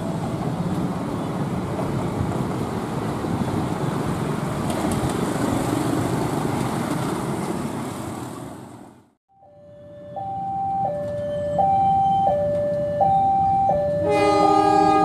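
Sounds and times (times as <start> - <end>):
train wheels rolling: 0.0 - 8.9.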